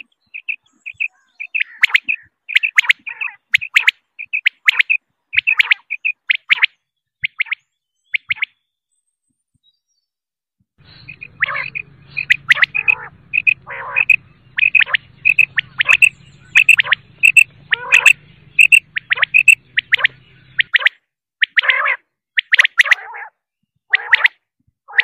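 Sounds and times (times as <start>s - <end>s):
quail calling: 0.0s - 7.6s, 10.8s - 25.0s.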